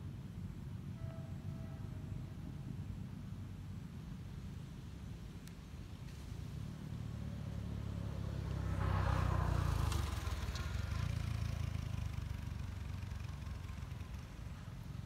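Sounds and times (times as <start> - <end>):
motor vehicle engine passing: 6.1 - 15.0.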